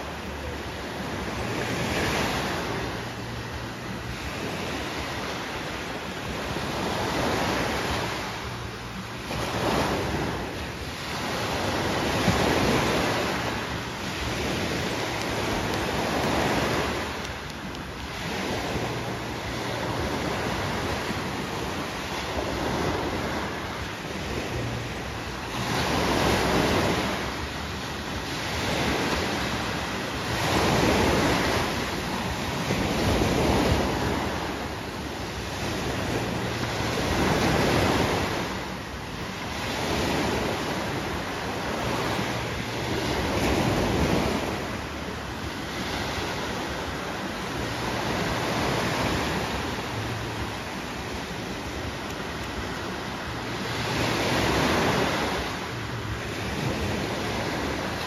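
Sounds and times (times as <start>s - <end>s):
waves breaking on shore: 0.0s - 58.0s.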